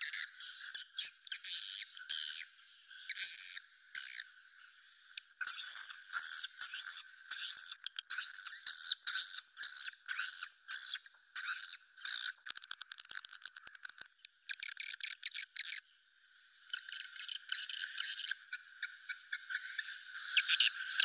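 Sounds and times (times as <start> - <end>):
many birds twittering: 16.7 - 21.0.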